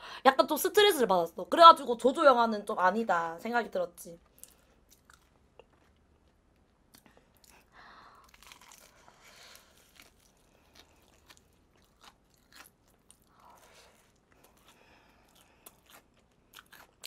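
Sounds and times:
crunching fried chicken: 8.2 - 17.0.

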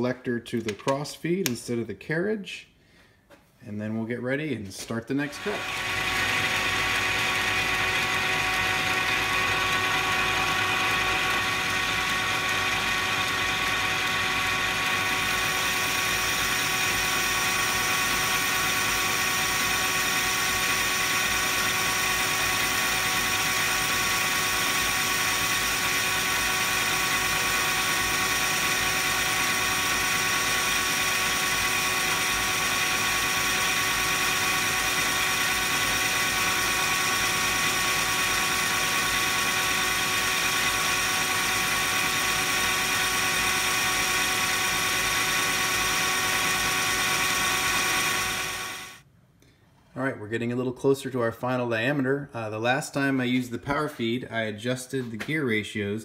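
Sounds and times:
metal cutting noise: 5.2 - 49.0
metal lathe gear whine: 5.4 - 49.0.

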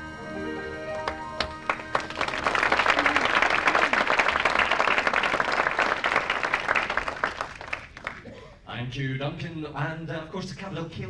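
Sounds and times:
accordion music: 0.0 - 4.4
audience applauding: 0.4 - 8.3.

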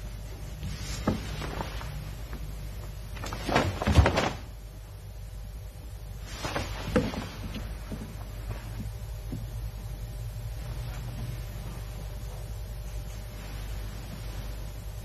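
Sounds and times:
steady low hum: 0.0 - 15.0
fabric swishing and snapping: 0.6 - 2.5, 3.2 - 4.6, 6.2 - 8.9
bare feet thudding on mat: 0.7 - 2.0.

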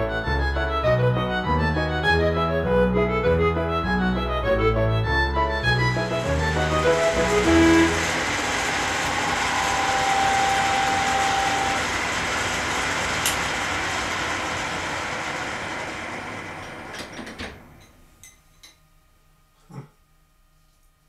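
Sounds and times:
milling machine cutting steel: 5.9 - 16.8.

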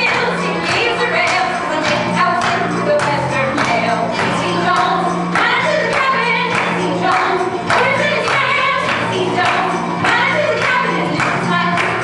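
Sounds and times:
instrumental accompaniment: 0.0 - 12.0
woman singing: 0.0 - 12.0.

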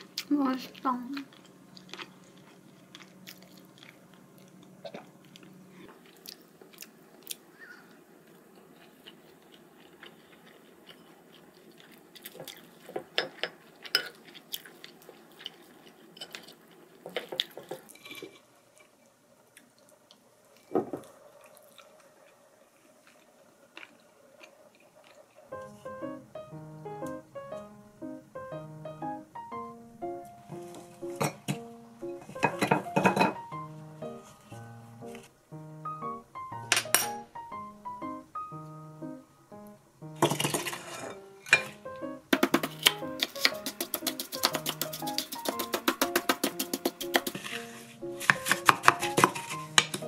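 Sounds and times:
soft chewing: 0.0 - 25.7
spoon knock: 32.4 - 33.4
wooden spoon scraping a plate: 40.2 - 41.2, 47.0 - 50.0.

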